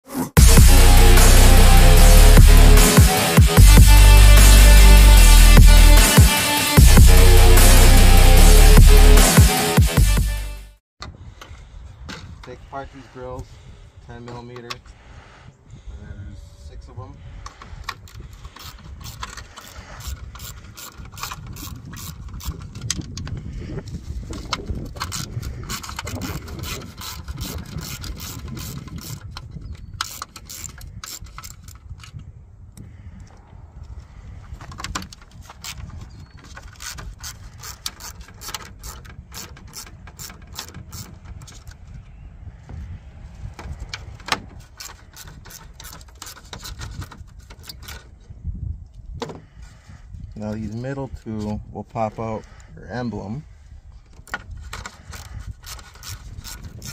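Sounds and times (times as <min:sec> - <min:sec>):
hand ratchet clicking: 0:17.5 - 0:23.2, 0:24.6 - 0:32.2, 0:34.7 - 0:41.8.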